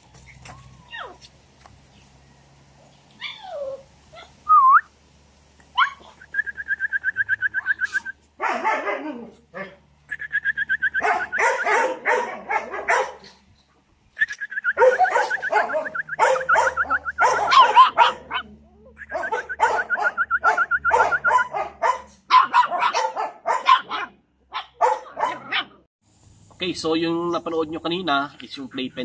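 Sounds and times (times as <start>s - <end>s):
puppies yapping and barking: 0.0s - 1.4s, 3.1s - 4.5s, 5.7s - 13.5s, 14.3s - 25.9s.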